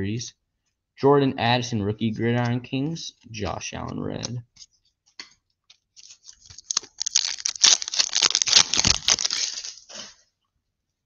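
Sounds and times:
foil wrapper crinkling: 6.0 - 10.0.

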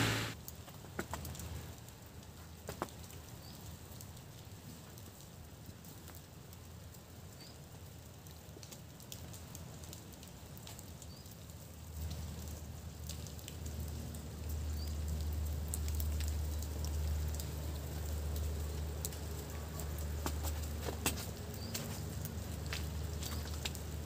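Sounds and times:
faint hiss: 0.0 - 0.4
low rumble: 0.0 - 0.4
wet snow ticking and pattering: 0.1 - 24.0.

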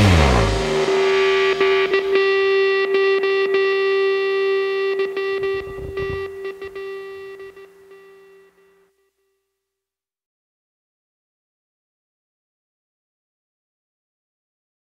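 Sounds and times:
held electric guitar note: 0.0 - 8.8.

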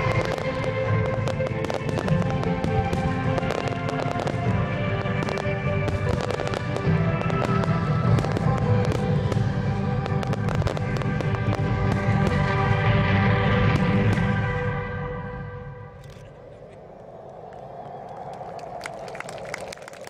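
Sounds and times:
fireworks bangs and crackles: 0.0 - 15.1
music: 0.0 - 16.2.

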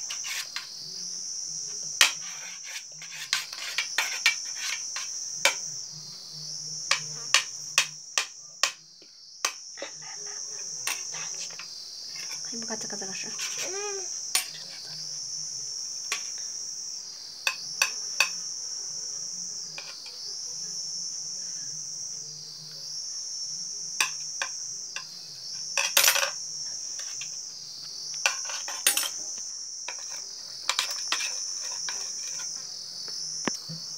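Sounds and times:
spoon scraping a plate: 0.0 - 0.7, 2.0 - 5.6, 10.1 - 12.5, 13.3 - 13.8, 19.7 - 20.2, 27.0 - 27.4, 28.2 - 29.2, 29.9 - 32.6
insects chorus: 0.0 - 33.9.

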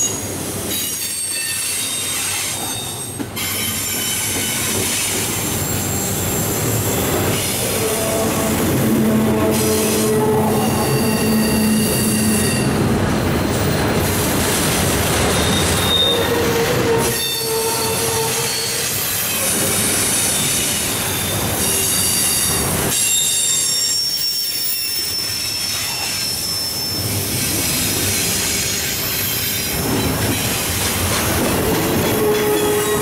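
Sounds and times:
steel wheels rumbling on rail: 0.0 - 33.0
high-pitched wheel squeals: 5.6 - 13.6, 15.3 - 19.4, 20.3 - 27.3, 32.0 - 33.0.

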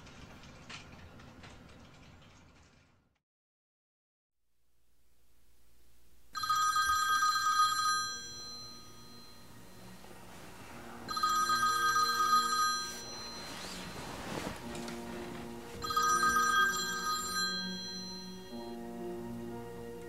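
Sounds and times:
telephone ringing: 6.4 - 18.9.

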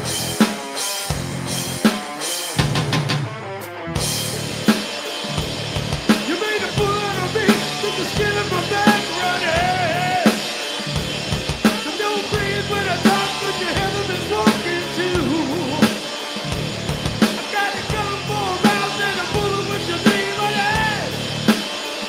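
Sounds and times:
electric bass guitar: 0.0 - 0.4, 1.1 - 1.9, 2.6 - 21.6
drum kit: 0.0 - 22.0
man singing: 6.2 - 10.6, 11.7 - 16.1, 17.3 - 21.6.

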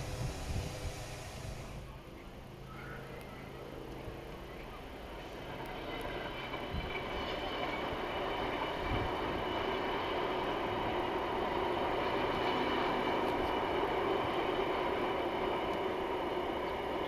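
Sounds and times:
freight train wheels rattling on rail: 0.0 - 1.9, 3.9 - 17.0.

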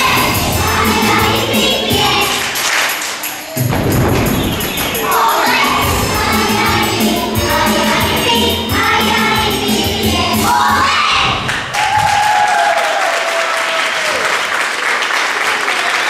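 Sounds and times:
accompaniment with pulsing bass: 0.0 - 2.4, 3.6 - 10.8
children's choir singing: 0.0 - 11.6.

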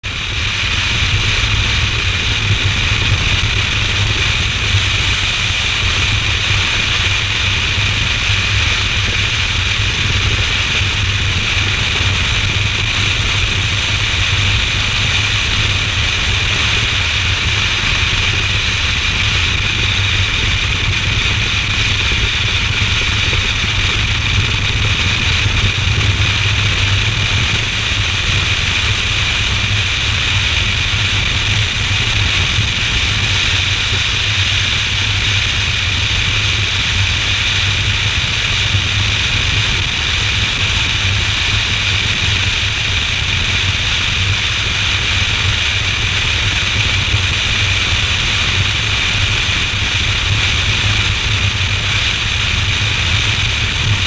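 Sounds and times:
motorcycle engine and road rumble: 0.0 - 54.0
wind noise: 0.0 - 54.0.

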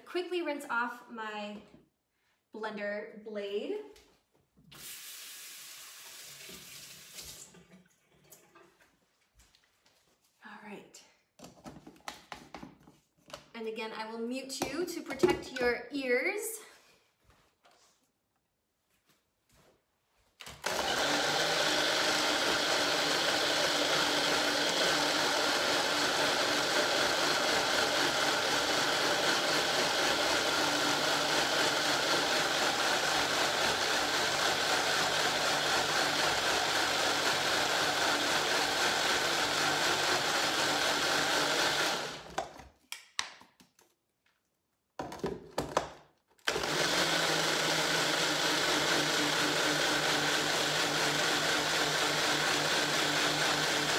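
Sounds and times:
blender running at high speed: 20.6 - 42.4, 46.5 - 53.9.

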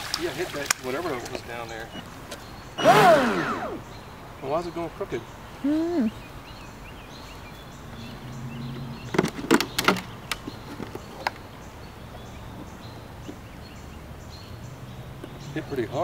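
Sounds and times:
hard plastic clacks: 9.1 - 11.5.

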